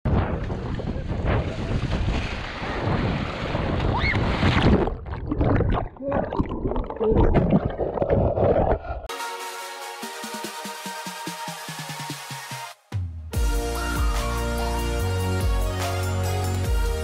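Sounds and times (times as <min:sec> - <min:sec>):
wind buffeting microphone: 0:00.1 - 0:06.0
muffled underwater bubbling: 0:04.8 - 0:09.1.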